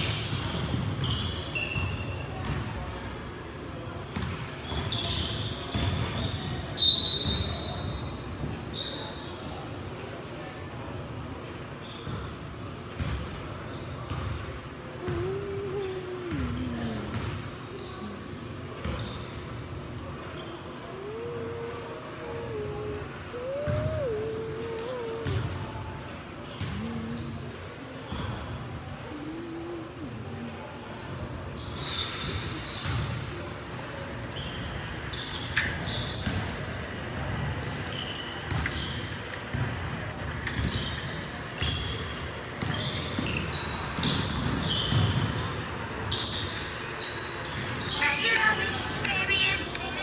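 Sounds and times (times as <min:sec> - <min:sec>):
basketball bouncing on gym floor: 0:00.0 - 0:02.7, 0:04.1 - 0:07.5, 0:12.0 - 0:13.4, 0:14.1 - 0:17.5, 0:18.8 - 0:19.2, 0:22.3 - 0:25.6, 0:26.6 - 0:27.4, 0:32.3 - 0:33.2, 0:36.2 - 0:36.5, 0:38.5 - 0:41.9, 0:42.6 - 0:45.5
sneakers squeaking on court: 0:00.0 - 0:03.3, 0:04.1 - 0:09.7, 0:11.8 - 0:21.7, 0:22.3 - 0:29.8, 0:31.5 - 0:50.0
basketball bouncing: 0:04.1 - 0:04.8, 0:13.0 - 0:13.3, 0:14.1 - 0:14.4, 0:15.0 - 0:17.4, 0:23.6 - 0:25.5, 0:26.6 - 0:27.3, 0:39.5 - 0:39.8.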